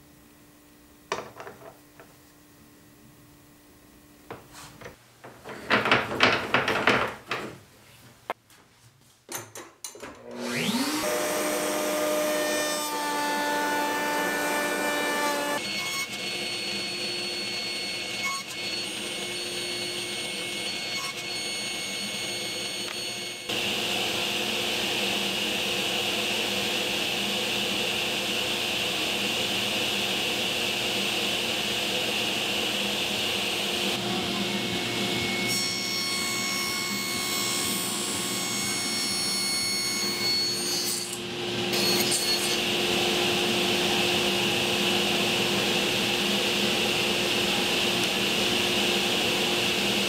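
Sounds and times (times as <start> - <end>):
router motor whining: 10.2 - 18.2
table saw running: 10.2 - 50.0.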